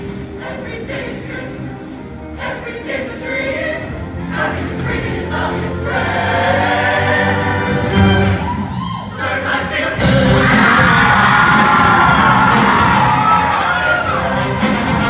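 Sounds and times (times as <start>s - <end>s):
choir singing in harmony: 0.0s - 15.0s
live backing band: 10.0s - 15.0s.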